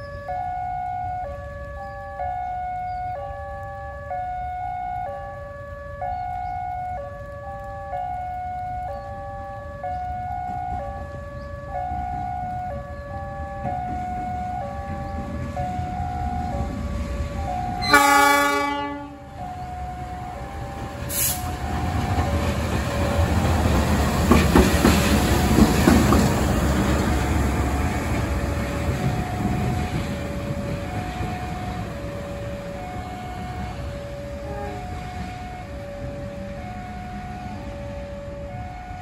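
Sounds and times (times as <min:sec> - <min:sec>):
locomotive passing: 0:00.0 - 0:39.0
locomotive horn blast: 0:17.8 - 0:19.4, 0:34.4 - 0:35.3.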